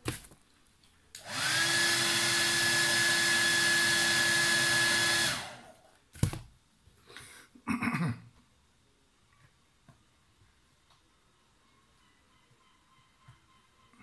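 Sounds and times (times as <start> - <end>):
hair dryer blowing: 1.2 - 5.8.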